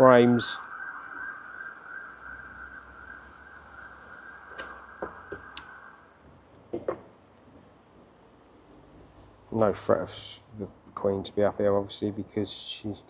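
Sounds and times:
comb frames clicking and knocking: 4.5s - 5.7s, 6.4s - 7.7s.

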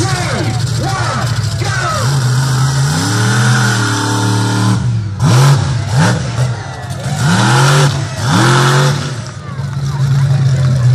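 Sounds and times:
truck engine revving hard: 0.0s - 10.9s.

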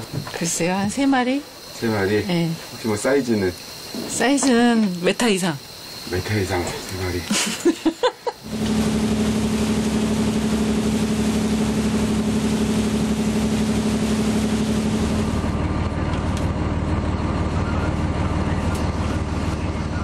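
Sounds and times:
boat engine running: 8.4s - 20.0s
water rushing in wake: 8.5s - 15.5s
muffled engine drone in cabin: 8.5s - 20.0s.

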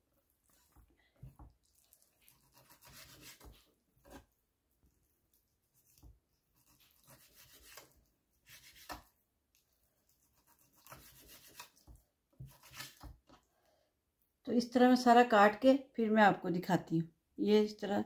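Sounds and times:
knife slicing meat on wooden board: 2.2s - 4.3s, 5.7s - 9.1s, 10.1s - 13.3s.

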